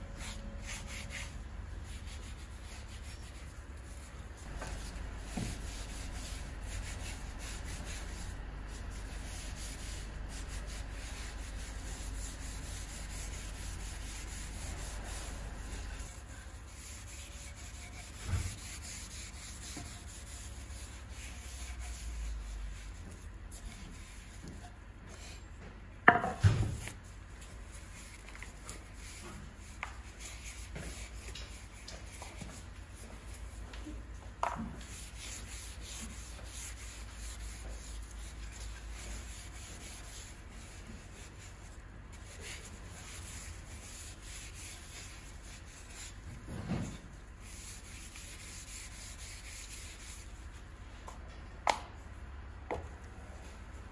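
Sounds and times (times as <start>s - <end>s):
knocks: 26.0s - 26.8s.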